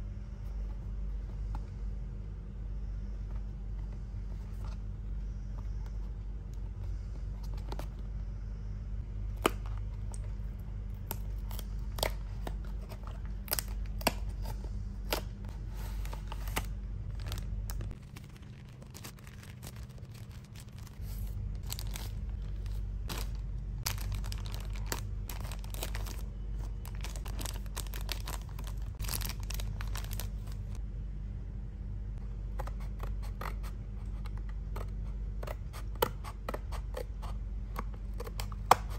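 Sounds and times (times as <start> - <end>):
steady low hum: 0.0 - 38.9
plastic bag crinkling: 16.3 - 30.8.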